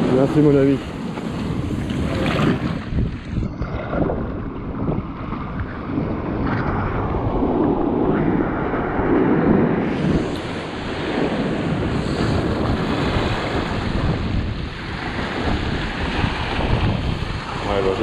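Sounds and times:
wind buffeting microphone: 0.0s - 18.0s
waves surging among rocks: 9.9s - 18.0s.

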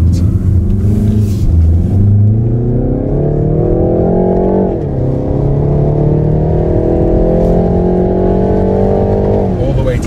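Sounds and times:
car engine accelerating: 0.0s - 10.0s.

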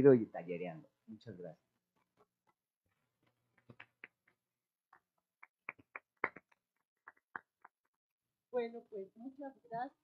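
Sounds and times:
people clapping: 3.4s - 7.9s.

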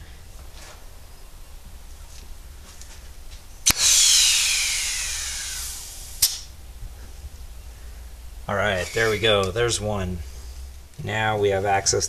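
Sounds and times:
sharp pop: 3.6s - 4.0s, 5.8s - 6.5s
sharp click: 3.7s - 3.9s, 6.2s - 6.5s
compressed air hissing: 3.7s - 7.2s, 8.6s - 9.5s.

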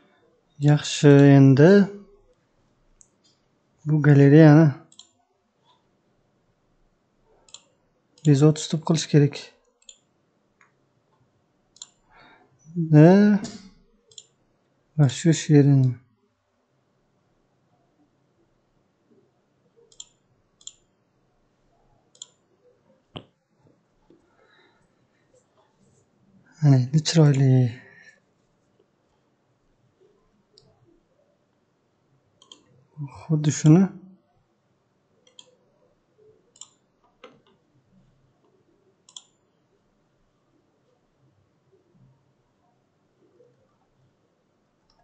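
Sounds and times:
computer mouse clicking: 4.9s - 5.8s, 7.5s - 8.3s, 9.8s - 10.7s, 11.8s - 12.0s, 13.4s - 14.4s, 19.9s - 20.9s, 22.1s - 22.4s, 32.4s - 32.7s, 35.2s - 35.6s, 36.5s - 37.6s, 38.4s - 39.4s.

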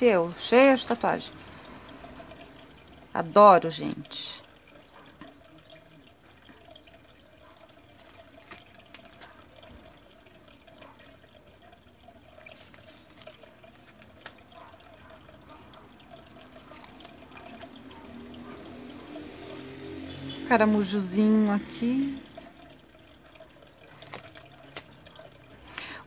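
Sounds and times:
cards clicking and rubbing: 24.0s - 24.9s.

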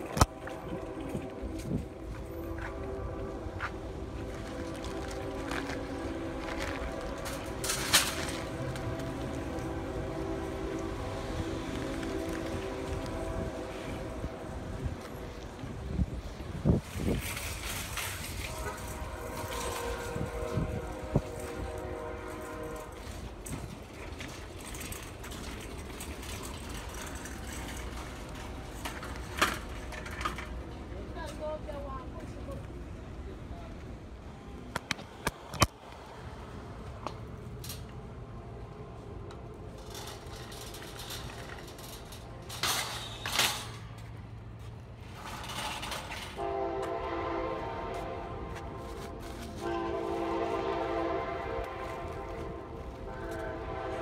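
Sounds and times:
horn chord: 0.0s - 14.7s
train horn blast: 0.0s - 16.4s, 17.2s - 23.8s, 45.2s - 54.0s
shopping carts rolling on pavement: 0.0s - 33.5s, 34.9s - 54.0s.

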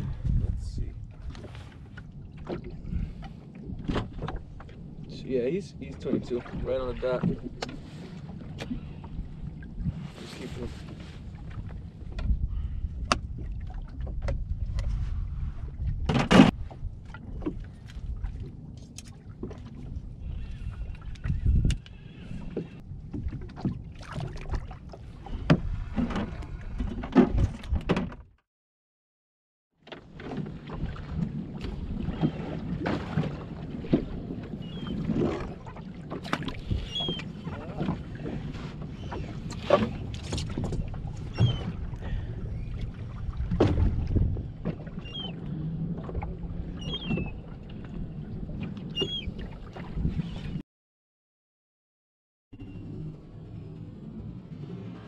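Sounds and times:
water slapping against boat hull: 0.0s - 4.9s, 5.8s - 12.4s, 13.0s - 15.2s, 20.7s - 28.4s, 29.8s - 50.6s
wind on microphone: 0.0s - 5.0s, 5.8s - 18.6s, 19.2s - 28.2s, 36.3s - 50.6s.

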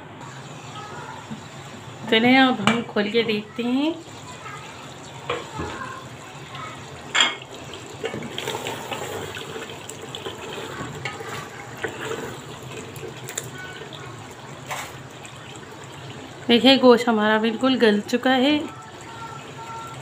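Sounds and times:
spatula sloshing and scraping in pot: 7.4s - 16.5s.

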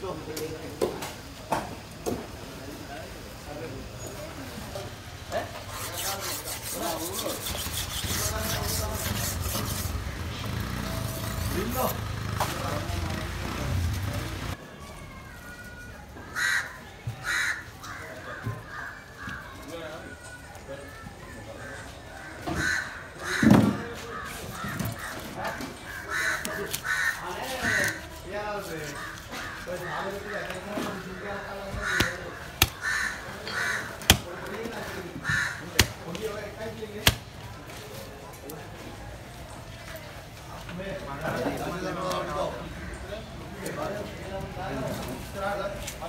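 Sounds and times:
knife scraping wooden chopping block: 5.6s - 10.1s, 26.2s - 30.9s, 31.9s - 32.8s
crows cawing: 16.2s - 19.7s, 21.5s - 28.1s, 28.8s - 36.1s.

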